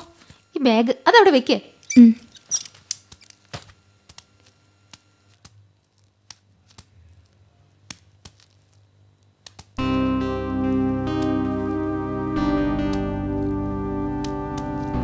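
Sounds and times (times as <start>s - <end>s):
music with plucked guitar: 9.8s - 15.0s.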